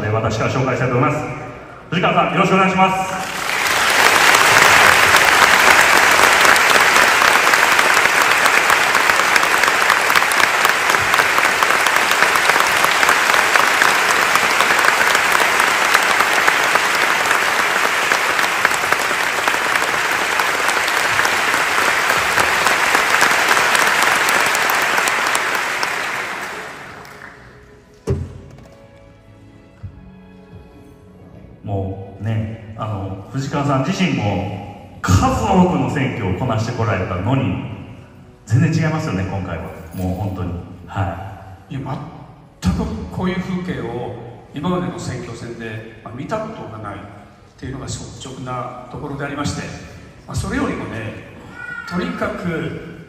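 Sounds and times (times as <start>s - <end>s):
audience applauding: 3.1s - 27.6s.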